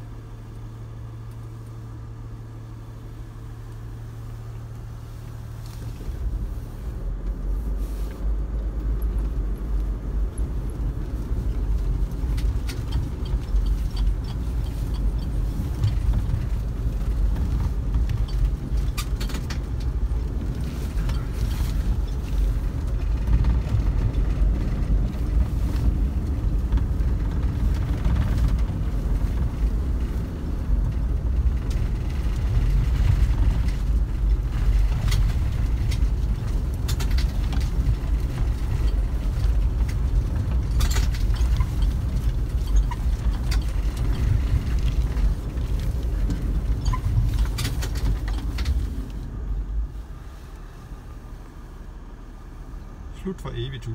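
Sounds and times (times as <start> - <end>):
vehicle engine and tyres rumbling: 0.0 - 53.9
knocks and rattles: 12.2 - 49.0.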